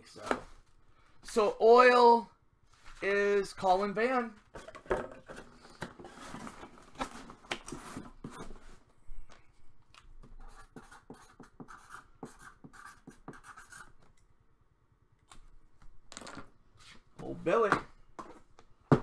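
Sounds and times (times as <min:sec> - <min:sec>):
paper and cardboard rustling: 0:04.3 - 0:08.9
marker pen strokes on cardboard: 0:10.4 - 0:13.9.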